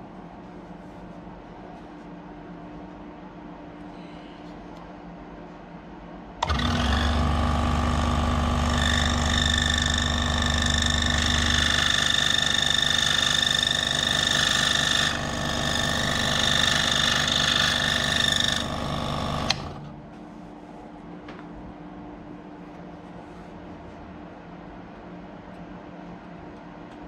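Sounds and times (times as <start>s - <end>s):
scroll saw cutting wood: 6.4s - 19.9s.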